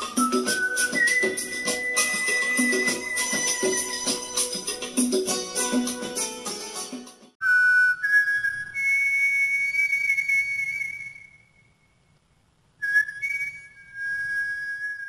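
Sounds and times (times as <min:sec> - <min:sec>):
high whistle tones: 0:00.0 - 0:04.6, 0:07.4 - 0:11.8, 0:12.8 - 0:15.0.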